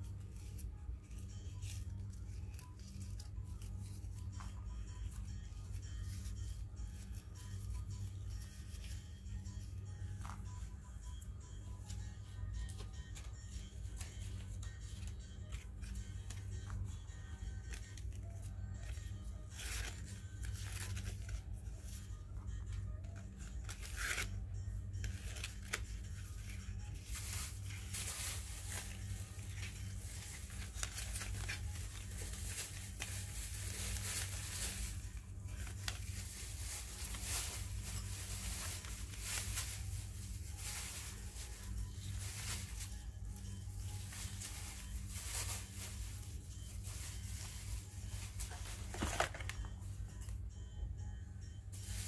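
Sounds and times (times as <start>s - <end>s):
ribbon rustling and scraping: 0.0s - 50.3s.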